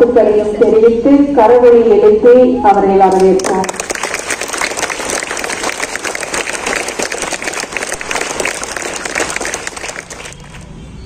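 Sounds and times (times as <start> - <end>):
children clapping: 3.1 - 10.7.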